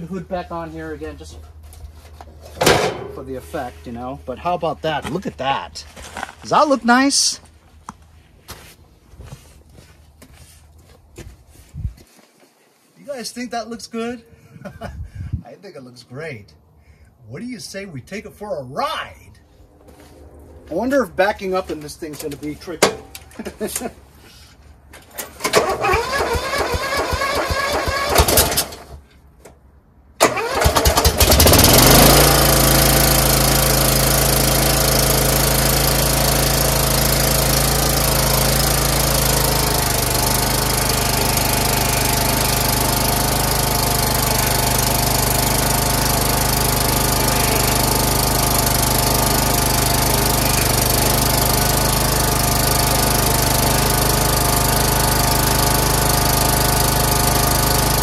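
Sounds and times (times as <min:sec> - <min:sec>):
lawn tractor engine running: 0:01.5 - 0:05.6, 0:25.4 - 0:29.0, 0:30.2 - 0:58.0
engine starter cranking: 0:25.2 - 0:29.0, 0:30.2 - 0:33.6.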